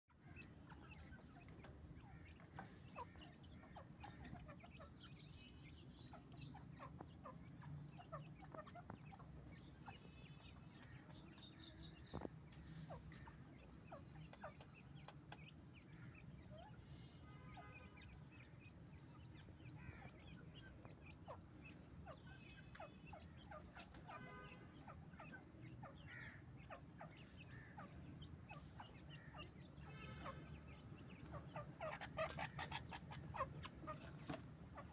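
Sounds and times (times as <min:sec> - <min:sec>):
chicks peeping: 0:00.1 - 0:34.9
hen clucking softly: 0:19.3 - 0:34.9.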